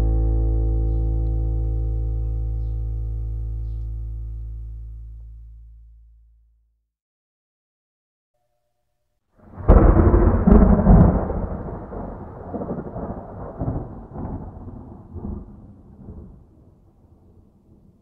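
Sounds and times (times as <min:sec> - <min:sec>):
thunder cracks and rumble: 0:09.4 - 0:18.0.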